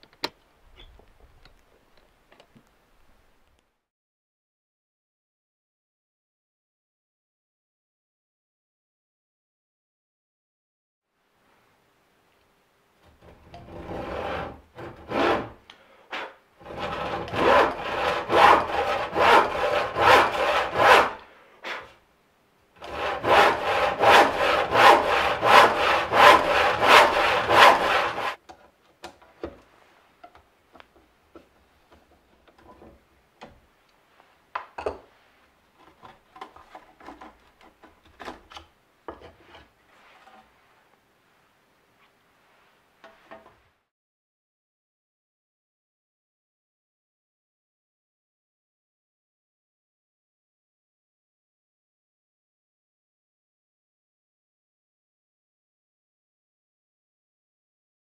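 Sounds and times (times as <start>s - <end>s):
handsaw cutting wood: 13.2s - 15.6s, 16.2s - 21.9s, 22.8s - 28.4s.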